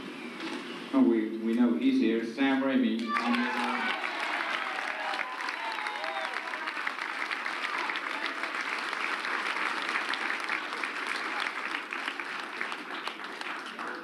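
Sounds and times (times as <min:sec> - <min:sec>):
audience applauding: 0:03.0 - 0:14.0.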